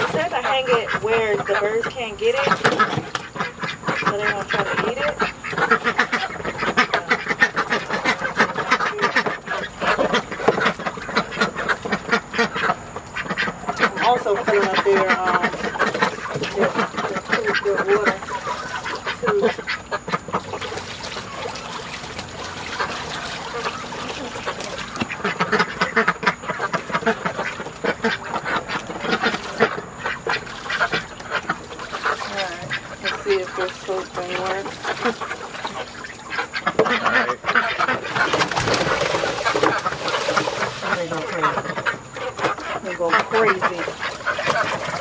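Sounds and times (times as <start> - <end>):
ducks quacking: 0.0 - 45.0.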